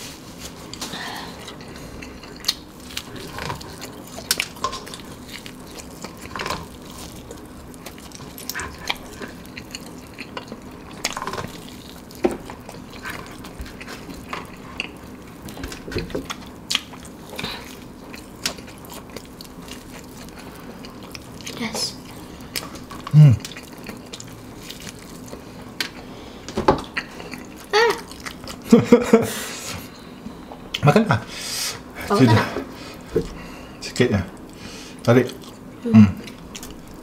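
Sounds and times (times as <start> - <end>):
person chewing fried chicken: 0.2 - 29.7, 32.9 - 37.0.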